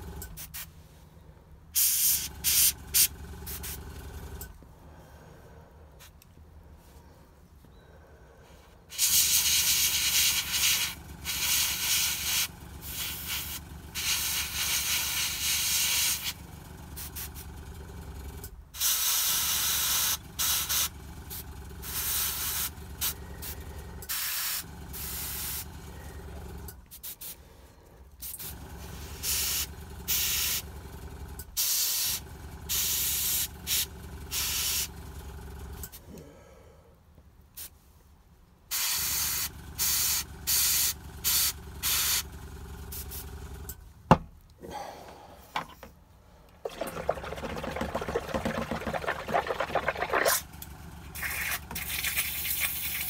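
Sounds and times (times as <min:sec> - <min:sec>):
air compressor humming: 0:01.8 - 0:04.6, 0:46.5 - 0:53.0.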